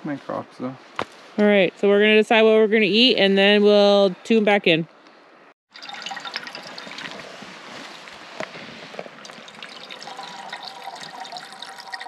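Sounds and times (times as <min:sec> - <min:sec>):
water trickling into a cup: 0:05.7 - 0:07.4, 0:09.1 - 0:12.0.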